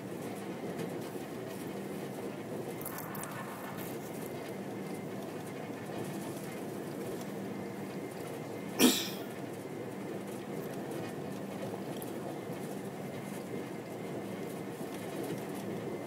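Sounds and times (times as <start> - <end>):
train cabin rumble and hum: 0.0 - 16.0
loud burst of noise: 2.7 - 5.0.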